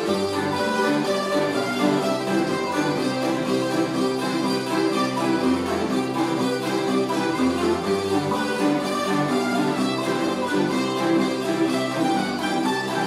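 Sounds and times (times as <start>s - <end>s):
zither ensemble playing folk music: 0.0s - 13.0s.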